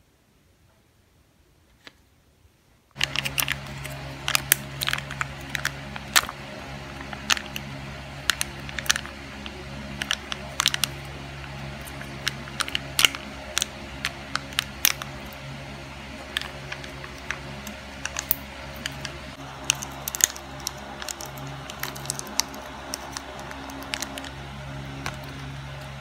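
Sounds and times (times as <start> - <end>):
low steady hum: 2.2 - 26.0
food packaging clicks and crinkles: 3.0 - 15.4, 16.2 - 24.4
foil lid being peeled: 16.2 - 24.4.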